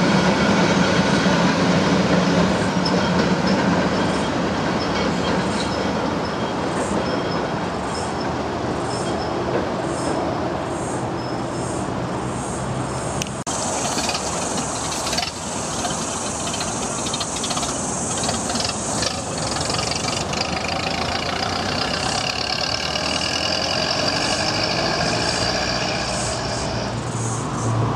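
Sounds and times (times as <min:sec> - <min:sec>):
bus engine running: 0:11.6 - 0:27.9
car engine running: 0:13.5 - 0:27.2
steady high whine: 0:21.8 - 0:27.9.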